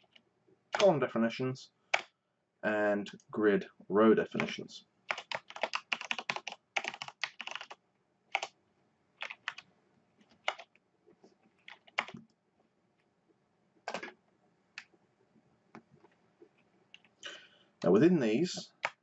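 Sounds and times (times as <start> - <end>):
typing on a keyboard: 0.0 - 0.9, 4.4 - 8.6, 9.2 - 10.8, 11.5 - 12.3, 18.8 - 19.0.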